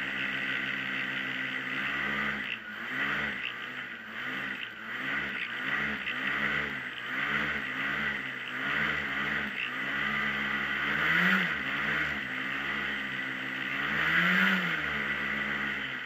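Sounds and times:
hovercraft engine revving: 0.0s - 16.0s.

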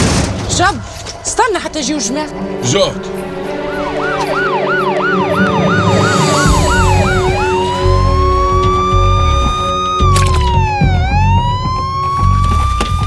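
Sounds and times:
police siren: 3.1s - 13.0s.

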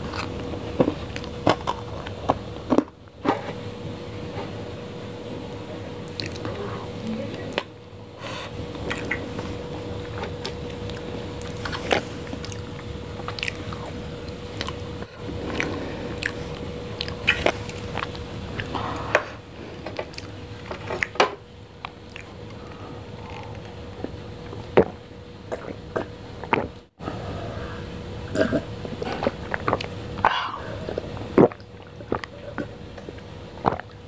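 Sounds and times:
faint hum: 0.0s - 34.0s
chewing with wet mouth sounds: 6.1s - 6.5s, 10.0s - 18.8s, 20.0s - 20.4s, 21.8s - 26.7s, 28.4s - 34.0s.

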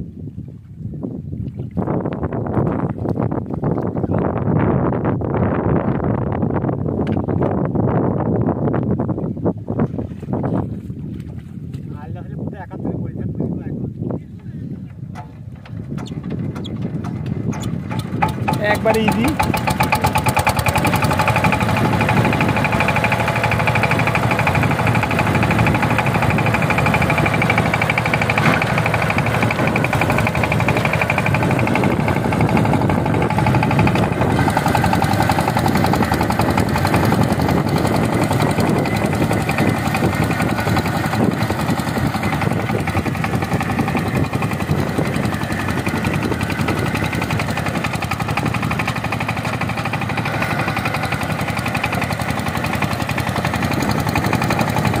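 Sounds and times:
diesel engine chugging: 15.2s - 55.0s.

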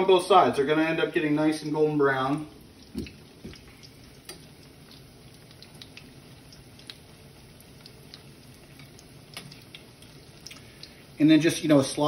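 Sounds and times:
oil crackling and popping: 1.6s - 11.2s
oysters sizzling in hot oil: 1.7s - 12.0s.

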